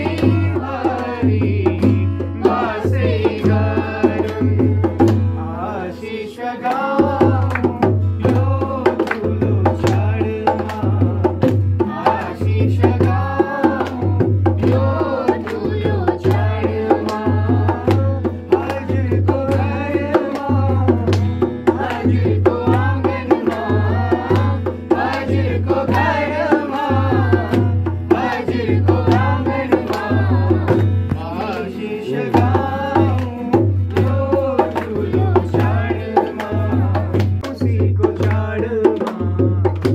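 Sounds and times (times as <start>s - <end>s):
hand drum beat: 0.0s - 39.9s
people singing a folk song: 0.0s - 39.9s.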